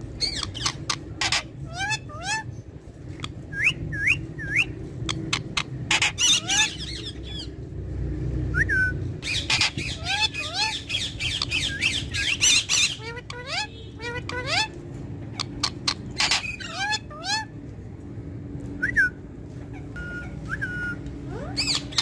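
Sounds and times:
parakeet squawking: 0.1 - 7.6, 9.2 - 17.6, 19.7 - 22.0
parakeet whistles: 3.2 - 7.5, 8.5 - 14.7, 20.0 - 22.0.

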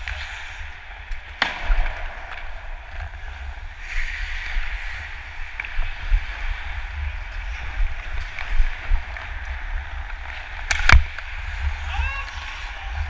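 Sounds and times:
wind rumbling on microphone: 0.0 - 13.0
sharp crack: 1.1 - 3.7, 10.6 - 11.3.

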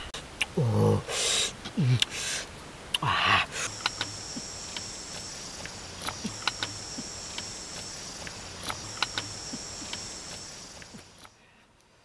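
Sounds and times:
high insect drone: 3.0 - 11.4.

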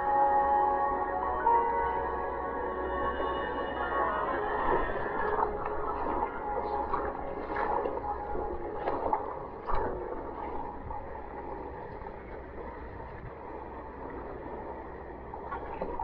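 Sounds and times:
water rushing along a boat: 0.0 - 16.0
paddle splashes: 4.4 - 16.0.

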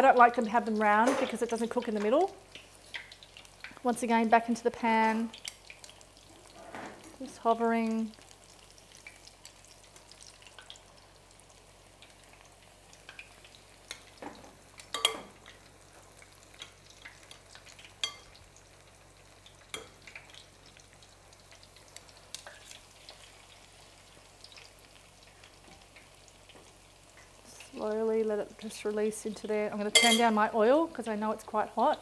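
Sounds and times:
batter frying in oil: 0.0 - 32.0
metal tongs clinking: 14.9 - 15.3, 18.0 - 18.3, 29.9 - 30.3.

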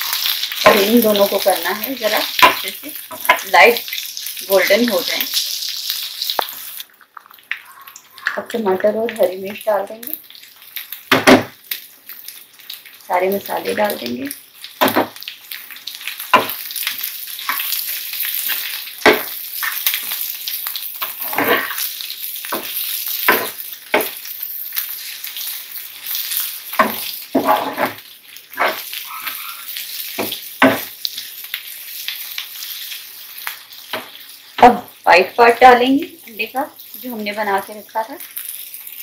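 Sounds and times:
vegetables sizzling in frying pan: 0.0 - 39.0
spatula scraping and knocking pan: 26.7 - 28.9.

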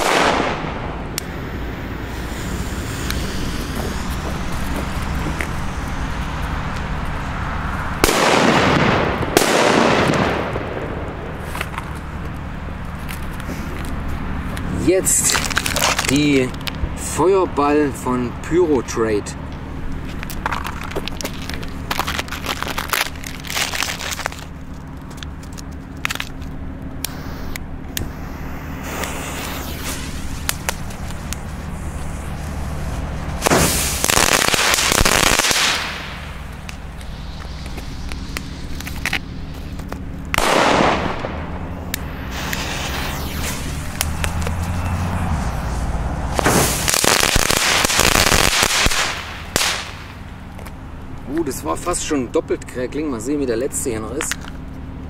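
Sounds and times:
firework crackling pops: 0.0 - 1.4, 8.0 - 13.5, 15.1 - 16.8, 20.1 - 50.2
sharp firework crack: 0.0 - 4.0, 8.0 - 11.6, 15.2 - 16.5, 27.0 - 50.2
steady low rumble: 0.0 - 55.0
clicks and scrapes on asphalt: 2.9 - 7.8, 11.4 - 16.8, 19.5 - 28.1, 28.8 - 34.0, 35.7 - 40.4, 41.9 - 47.1, 53.6 - 54.8
fuse sputtering: 19.5 - 50.4
lighter hissing: 27.0 - 39.9, 41.9 - 46.9.

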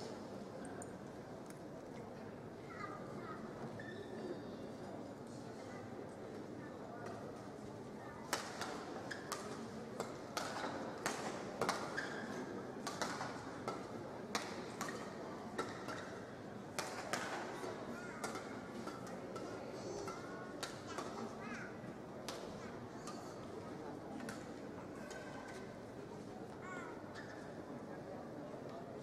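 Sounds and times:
murmur of crowd: 0.0 - 29.0.

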